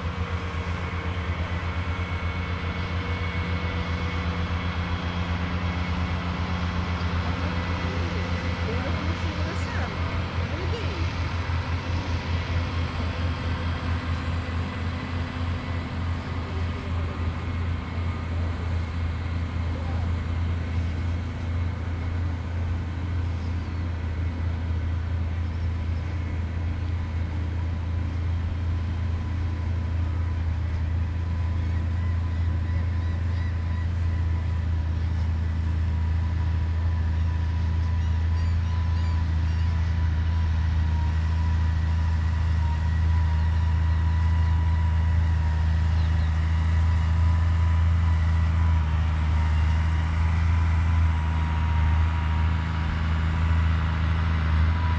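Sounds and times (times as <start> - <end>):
tractor engine drone: 0.0 - 54.9.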